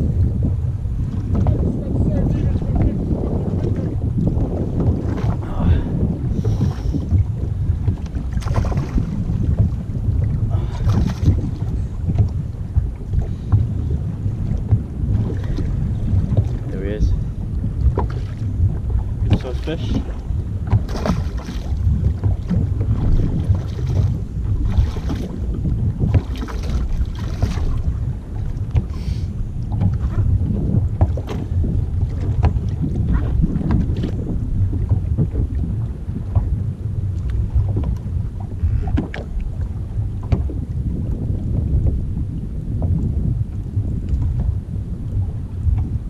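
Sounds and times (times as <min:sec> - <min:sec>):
wind buffeting microphone: 0:00.0 - 0:46.0
water splashing: 0:01.0 - 0:36.6.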